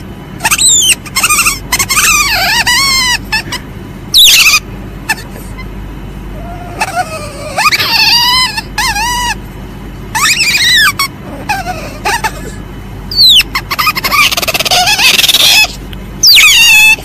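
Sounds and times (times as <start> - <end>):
civet squealing: 0.4 - 5.7, 6.4 - 9.4, 10.1 - 17.0
harsh rasping animal call: 6.4 - 9.4, 10.1 - 17.0.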